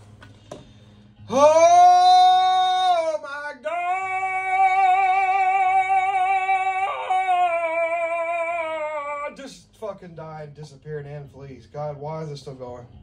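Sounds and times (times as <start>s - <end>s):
man singing long high note: 1.3s - 9.4s.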